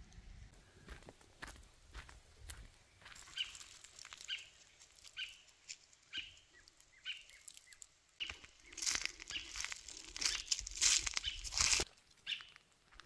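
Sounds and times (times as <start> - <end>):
footsteps crunching on dry leaves: 0.9 - 13.0
high bird chirps: 3.0 - 11.6.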